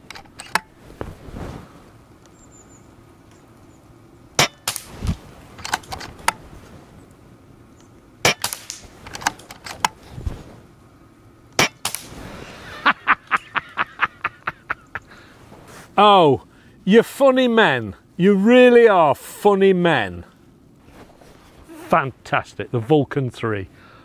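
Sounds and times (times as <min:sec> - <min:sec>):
air rifle shots cracking: 0:04.4 - 0:06.4, 0:08.2 - 0:10.0, 0:11.6 - 0:12.2
man laughing: 0:12.5 - 0:15.3.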